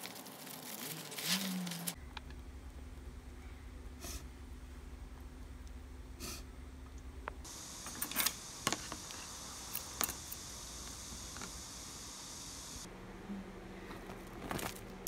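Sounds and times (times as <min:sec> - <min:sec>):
faint hiss: 0:07.4 - 0:12.9.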